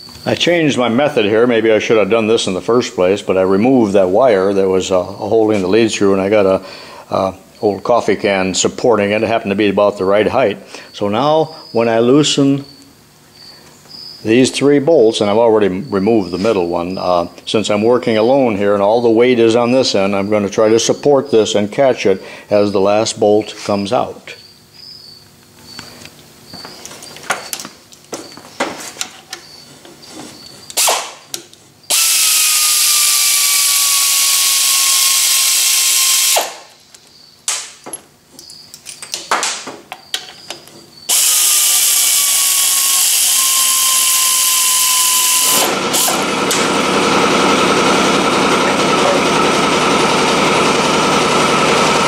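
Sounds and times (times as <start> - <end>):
steady mechanical noise: 0.0 - 52.0
power tool whine: 31.8 - 36.7, 41.0 - 52.0.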